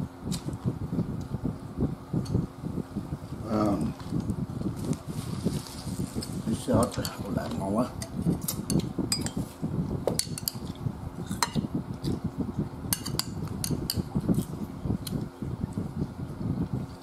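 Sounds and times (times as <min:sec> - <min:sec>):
metal spoon clinking in ceramic bowl: 0:08.7 - 0:09.4.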